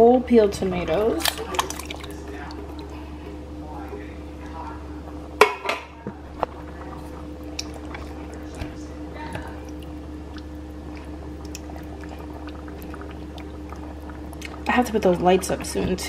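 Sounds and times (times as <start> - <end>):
low hum: 0.0 - 16.0
tomatoes squishing wetly: 1.1 - 3.1, 6.3 - 16.0.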